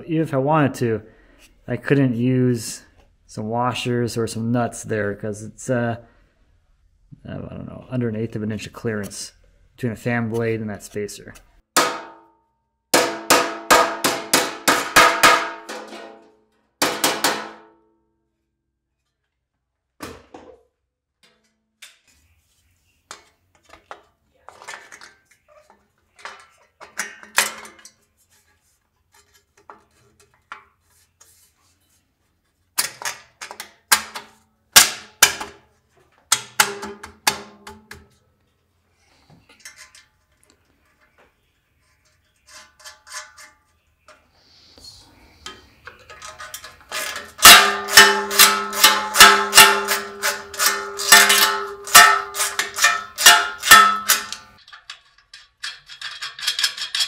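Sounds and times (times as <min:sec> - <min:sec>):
mallet striking sheet metal: 0:11.8 - 0:16.2, 0:16.8 - 0:17.8, 0:47.4 - 0:54.5.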